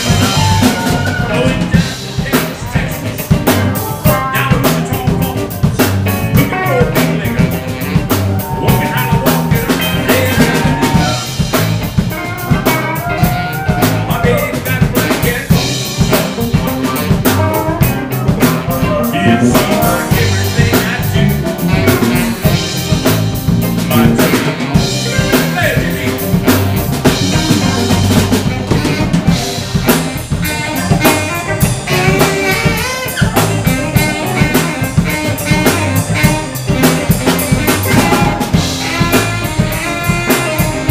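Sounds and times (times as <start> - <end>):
blues band playing: 0.0 - 40.9
saxophone: 0.0 - 40.9.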